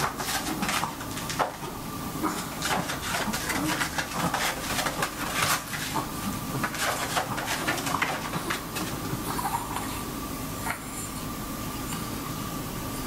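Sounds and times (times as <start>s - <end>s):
puppy paws scratching on pads: 0.0s - 9.8s.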